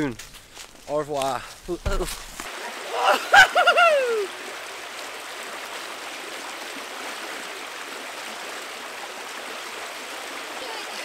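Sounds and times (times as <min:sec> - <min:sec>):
river rushing over stones: 0:02.3 - 0:11.0
man whooping: 0:02.9 - 0:04.3.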